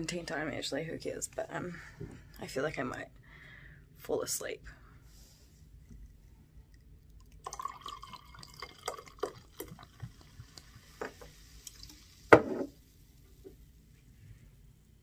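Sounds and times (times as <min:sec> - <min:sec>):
liquid pouring into a glass: 0:05.9 - 0:12.8.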